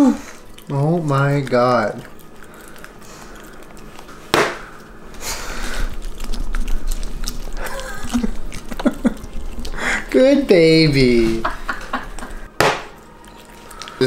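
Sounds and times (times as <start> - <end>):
sharp knock: 12.6 - 12.9.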